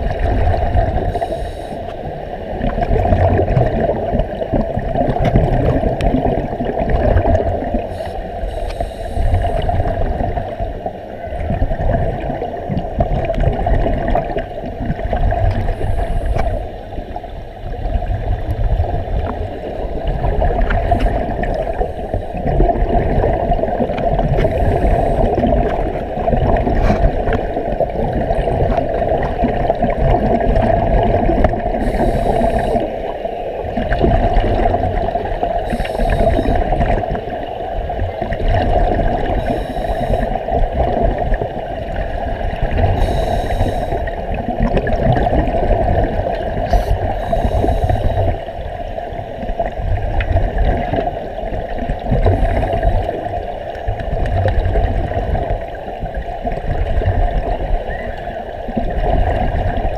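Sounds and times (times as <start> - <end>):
underwater air bubbles gurgling: 0.0 - 59.9.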